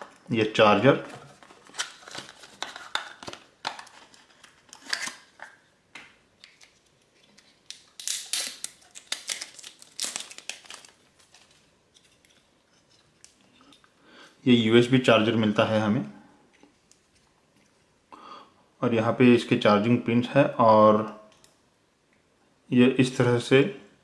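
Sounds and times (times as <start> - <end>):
wrapped cable crinkling: 1.2 - 5.5, 6.4 - 13.5.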